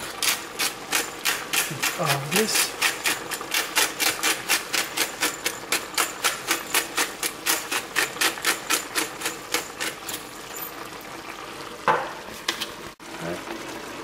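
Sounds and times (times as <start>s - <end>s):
pepper mill grinding: 0.0s - 10.8s.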